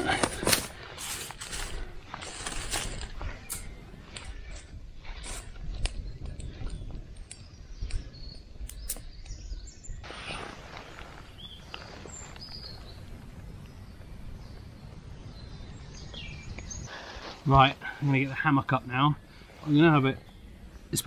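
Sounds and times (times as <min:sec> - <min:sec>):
sticks clattering on campfire: 0:00.0 - 0:07.4
wind: 0:00.0 - 0:21.0
bird chirps: 0:03.2 - 0:21.0.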